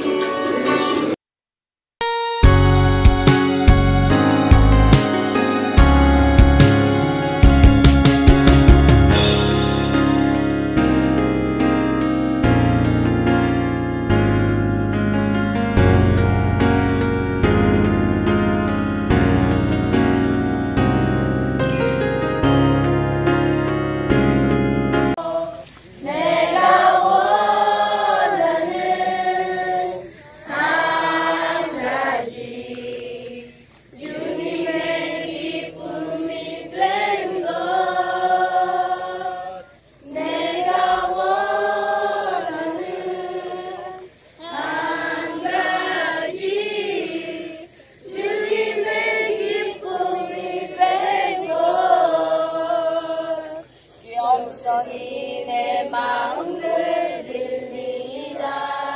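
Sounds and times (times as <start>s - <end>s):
children singing unaccompanied: 0.0s - 1.2s, 25.2s - 58.9s.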